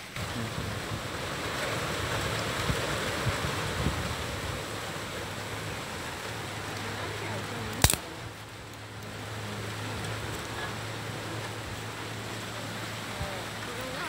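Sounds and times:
faint fire crackles: 0.0s - 14.0s
fire rushing in stove: 7.8s - 8.0s.

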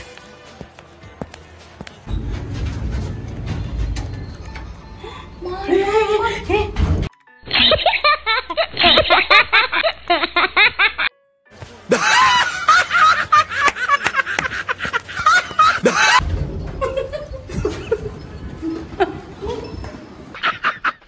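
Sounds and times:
low rumble: 2.1s - 5.4s, 16.2s - 19.3s
men laughing loudly: 7.5s - 11.1s, 11.9s - 16.2s, 16.8s - 21.0s.

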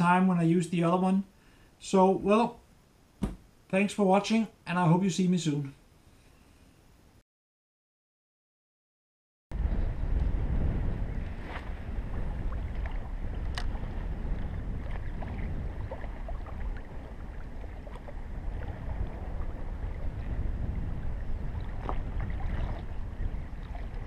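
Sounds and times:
wind buffeting microphone: 9.5s - 24.0s
water lapping and splashing: 9.6s - 24.0s.

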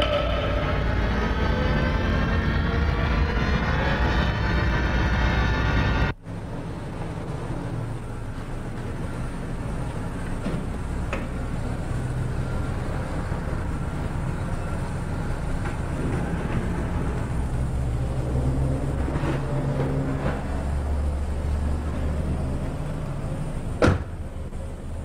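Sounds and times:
car engine running low: 0.0s - 25.0s.

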